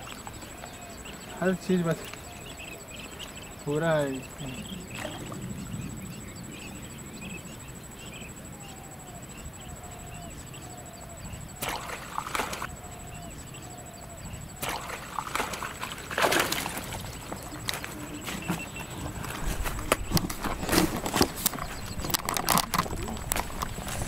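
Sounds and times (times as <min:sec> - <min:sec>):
water splashing from thrashing fish: 0:11.6 - 0:12.7, 0:14.6 - 0:18.0.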